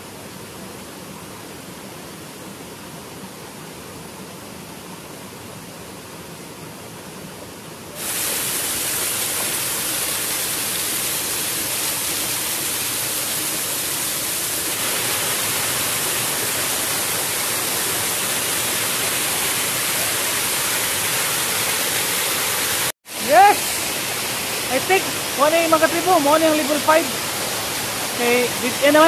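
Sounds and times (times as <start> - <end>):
waterfall rushing: 8.0 - 29.0.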